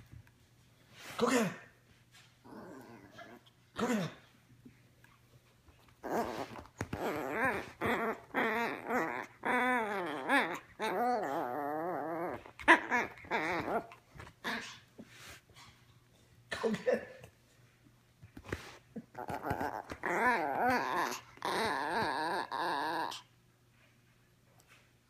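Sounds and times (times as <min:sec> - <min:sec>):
puppy whining and growling: 0:02.4 - 0:04.2, 0:05.8 - 0:15.1, 0:18.5 - 0:23.3.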